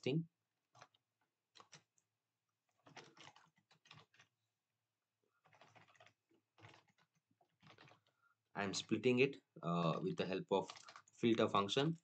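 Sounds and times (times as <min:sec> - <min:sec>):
computer keyboard typing: 0:02.8 - 0:04.3, 0:05.4 - 0:08.1, 0:10.6 - 0:12.0.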